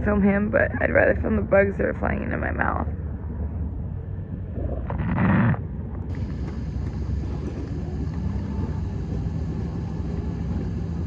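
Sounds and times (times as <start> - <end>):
wind buffeting microphone: 0.0 - 11.0
engine idling: 6.0 - 11.0.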